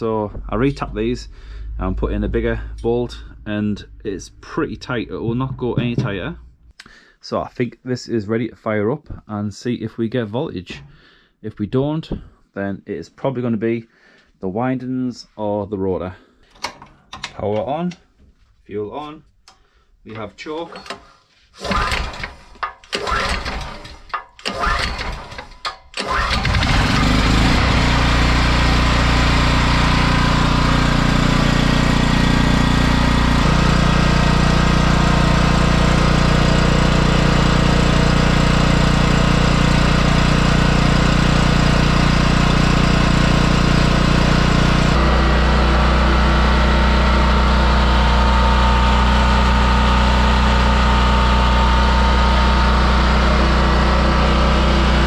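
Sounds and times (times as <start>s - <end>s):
petrol generator engine running: 0.0s - 6.7s, 26.0s - 55.0s.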